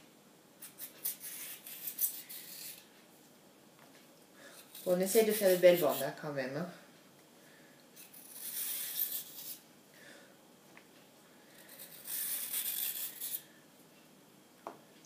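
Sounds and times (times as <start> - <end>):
peeler scraping cucumber skin: 0.6 - 2.8, 4.6 - 6.2, 11.7 - 13.4.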